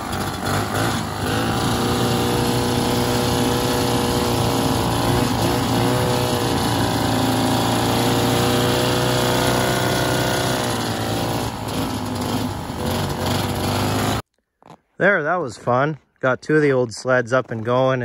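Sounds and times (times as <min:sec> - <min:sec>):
snowmobile engine running: 0:00.0 - 0:14.2.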